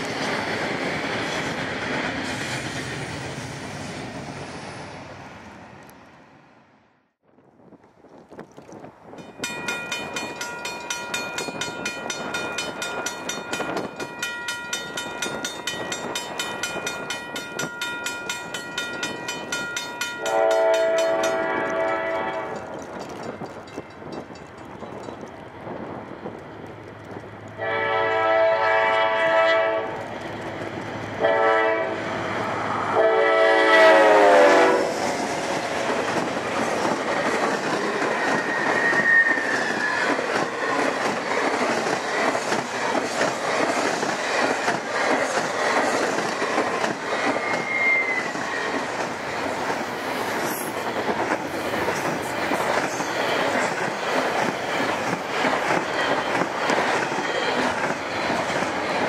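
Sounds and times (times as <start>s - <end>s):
train wheels rumbling on rails: 0.0s - 5.9s, 8.9s - 59.0s
locomotive horn blasts: 20.1s - 22.6s, 27.6s - 30.0s, 31.2s - 32.0s, 32.8s - 35.0s
high wheel squeals: 37.8s - 40.3s, 47.2s - 48.9s.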